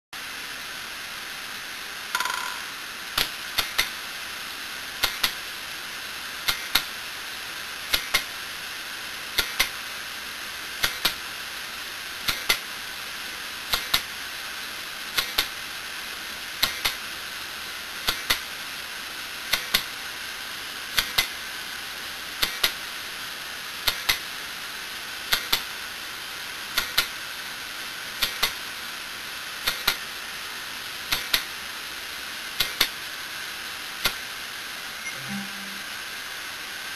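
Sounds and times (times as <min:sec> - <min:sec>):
steady hiss: 0:00.2 - 0:36.9
hard disk drive clicking: 0:07.9 - 0:08.3, 0:09.4 - 0:09.7, 0:10.8 - 0:11.2, 0:12.3 - 0:12.6, 0:13.7 - 0:14.1, 0:31.1 - 0:31.5, 0:32.6 - 0:33.0.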